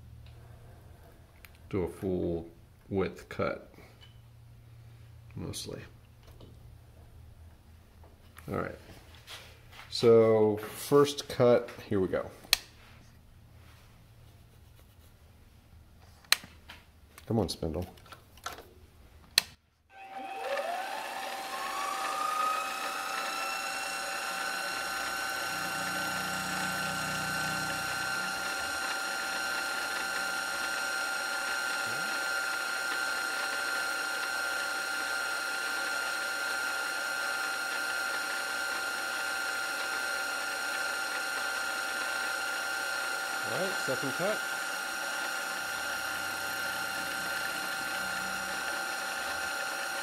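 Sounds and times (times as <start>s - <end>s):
end mill cutting plastic: 19.9s - 50.0s
milling spindle whining: 19.9s - 50.0s.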